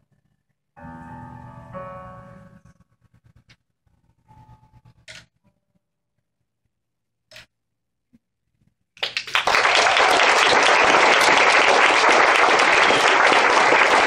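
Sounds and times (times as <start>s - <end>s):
audience applauding: 9.0s - 14.0s.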